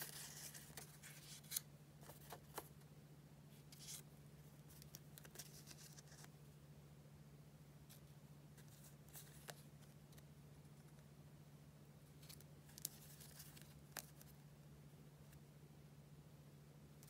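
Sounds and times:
paper sticker sheets rustling: 0:00.0 - 0:02.7, 0:03.6 - 0:04.0, 0:04.7 - 0:06.3, 0:08.6 - 0:10.2, 0:12.2 - 0:14.3
low steady hum: 0:00.0 - 0:17.0.

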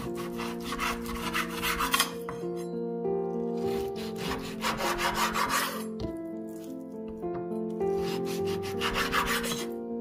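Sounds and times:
knife slicing meat on wood board: 0:00.0 - 0:02.7, 0:03.6 - 0:07.3, 0:07.9 - 0:09.8.

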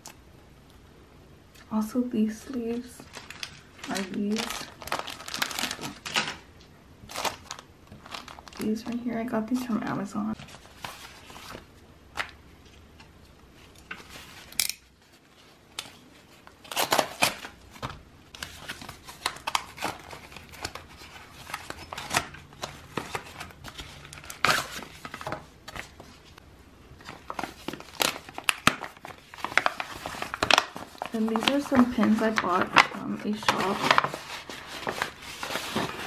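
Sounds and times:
plastic packaging crinkling: 0:02.5 - 0:12.8, 0:13.6 - 0:26.4, 0:27.0 - 0:36.0.

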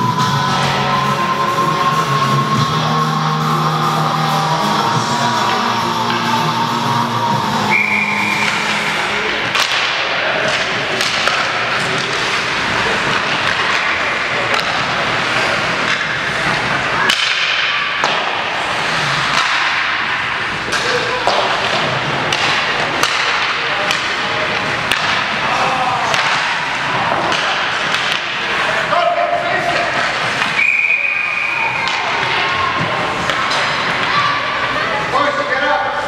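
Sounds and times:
murmur of spectators: 0:00.0 - 0:36.0
hockey sticks clacking: 0:00.2 - 0:36.0
skate blades scraping ice: 0:18.5 - 0:19.6.

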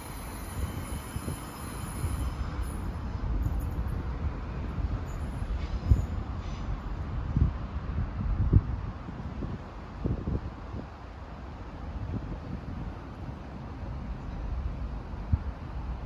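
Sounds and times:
wheel squeal: 0:00.0 - 0:02.9
wind on microphone: 0:00.0 - 0:11.0, 0:11.9 - 0:13.5
distant train rumble: 0:00.0 - 0:16.0.

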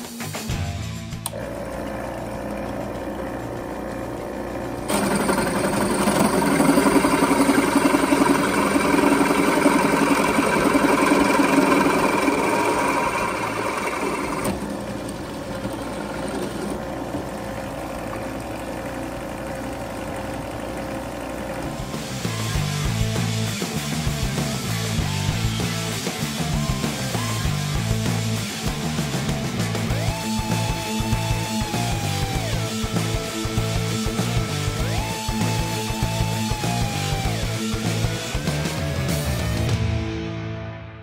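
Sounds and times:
drill press cutting metal: 0:01.2 - 0:23.1.

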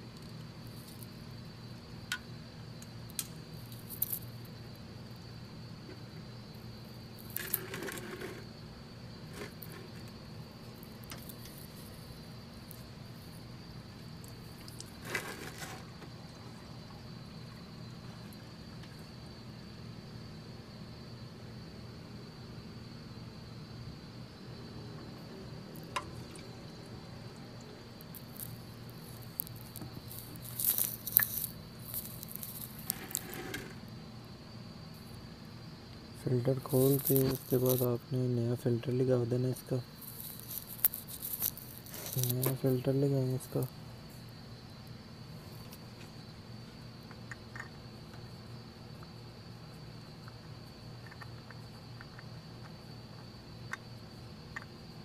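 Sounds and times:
steady low hum: 0:00.0 - 0:55.0
oil filter squishing: 0:28.1 - 0:33.3
hands rustling and scraping: 0:28.2 - 0:33.6, 0:40.0 - 0:42.7.

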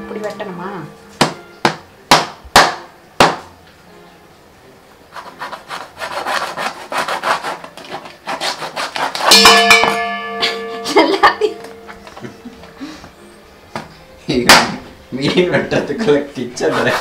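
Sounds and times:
knife sawing through fish: 0:05.2 - 0:09.4, 0:16.6 - 0:17.0.

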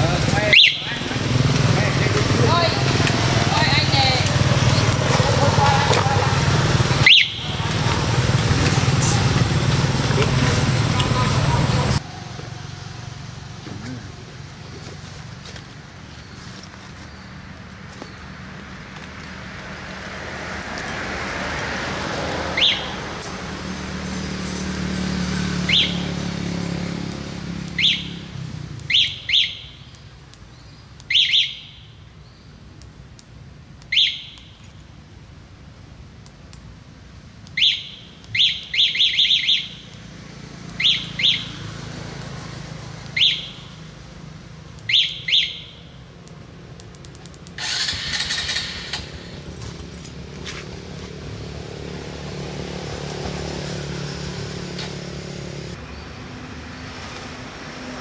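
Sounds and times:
passing vehicle engine rumbling: 0:00.0 - 0:30.4, 0:39.7 - 0:45.0, 0:45.9 - 0:58.0
bird chirping: 0:00.1 - 0:05.0, 0:07.0 - 0:07.8, 0:22.5 - 0:23.0, 0:23.6 - 0:26.2, 0:27.6 - 0:32.8, 0:33.9 - 0:34.8, 0:37.6 - 0:41.8, 0:43.0 - 0:43.9, 0:44.8 - 0:46.0.

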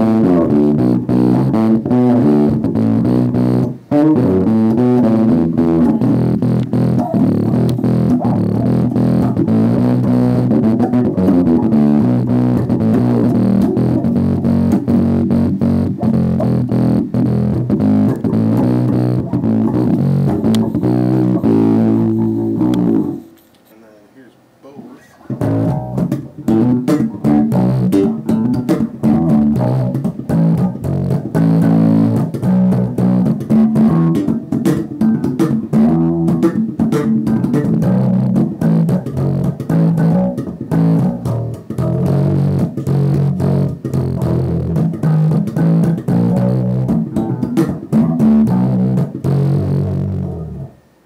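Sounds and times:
plucked electric bass lines: 0:00.0 - 0:23.4, 0:25.3 - 0:50.8.

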